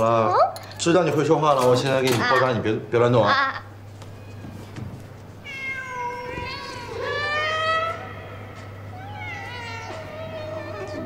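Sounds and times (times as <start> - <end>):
cat meowing: 5.4 - 11.0.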